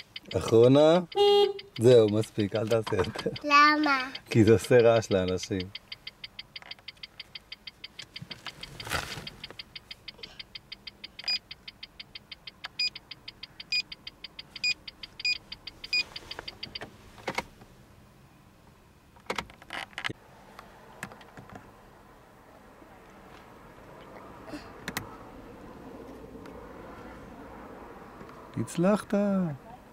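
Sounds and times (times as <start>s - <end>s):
turn signal ticking: 0.0s - 17.7s.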